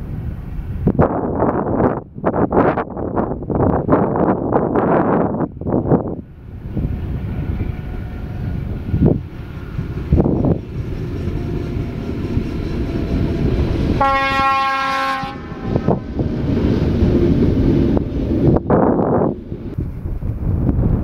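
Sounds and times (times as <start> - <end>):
electric locomotive passing: 0.0 - 21.0
low rumble of train: 0.0 - 21.0
wind on microphone: 0.0 - 21.0
train horn: 11.0 - 16.1.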